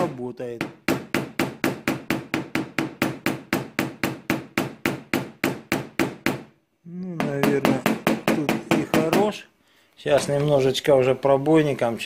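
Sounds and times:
hammer tapping rapidly: 0.0 - 6.5, 7.2 - 9.4.

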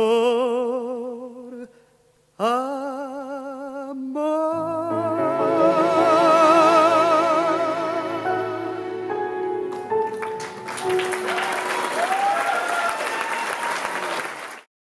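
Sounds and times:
tango music held notes: 4.6 - 11.7
audience applause: 9.7 - 14.7
whoops: 11.2 - 14.1.

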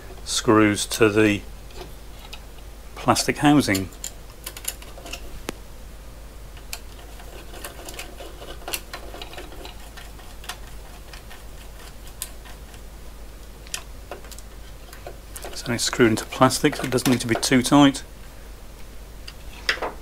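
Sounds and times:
screwdriver clicks and scrapes: 6.6 - 12.8.

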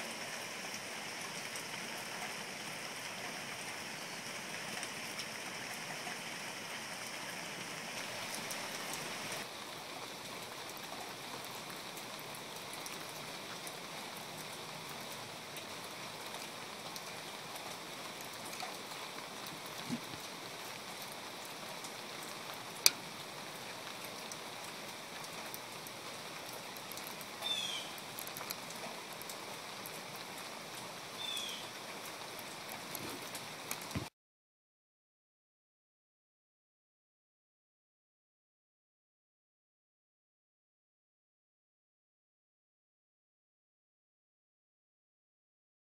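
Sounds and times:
rain falling on garden: 0.0 - 34.1.

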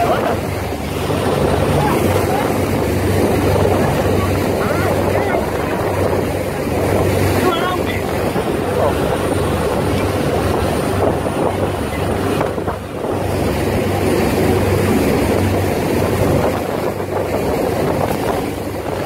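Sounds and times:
boat engine humming: 0.0 - 19.0
wind and water rushing: 0.0 - 19.0.

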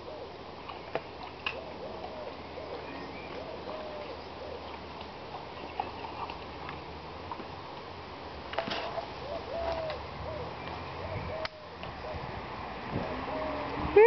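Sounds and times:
pigeon cooing: 0.0 - 0.4, 1.4 - 4.7, 9.2 - 14.0.

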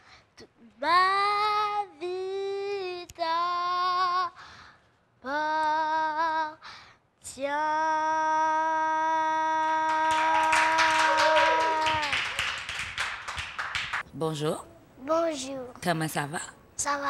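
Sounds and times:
girl singing unaccompanied: 0.4 - 4.4, 5.2 - 10.9
clapping: 9.8 - 14.0.

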